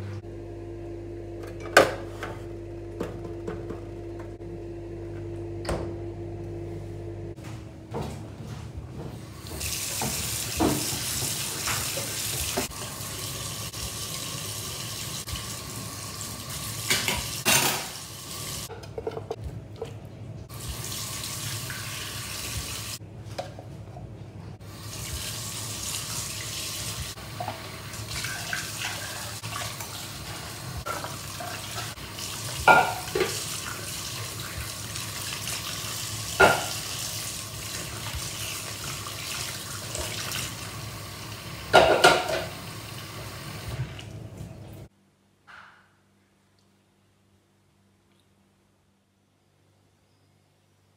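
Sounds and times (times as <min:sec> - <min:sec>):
tap running into a sink: 0:09.4 - 0:13.0.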